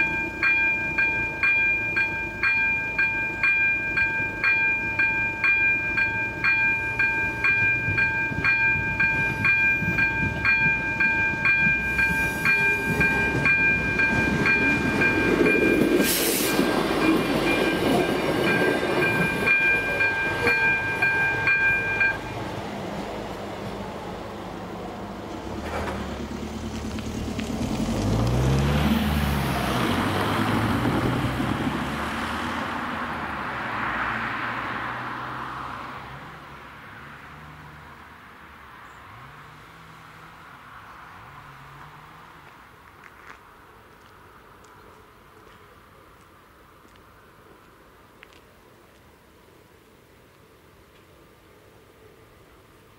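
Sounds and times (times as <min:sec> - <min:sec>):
level crossing warning bell: 0:00.0 - 0:22.5
passing train rumble: 0:00.0 - 0:45.4
vehicle engine approaching: 0:06.7 - 0:38.1.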